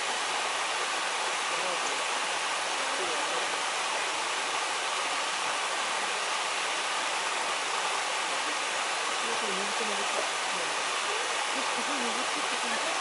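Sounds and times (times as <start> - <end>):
waterfall and rapids rushing: 0.0 - 13.0.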